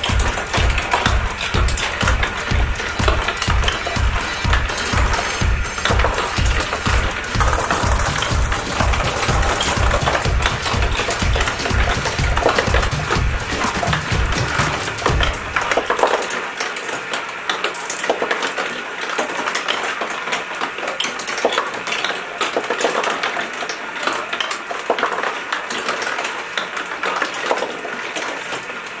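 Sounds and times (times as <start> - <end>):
marbles clattering and rolling: 17.5 - 28.6.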